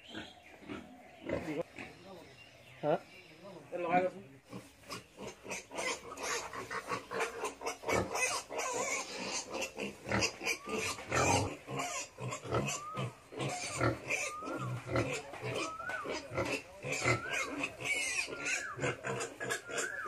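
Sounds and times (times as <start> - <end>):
pigs grunting and snuffling: 0.0 - 2.3, 3.9 - 20.0
piglets squealing: 4.6 - 20.0.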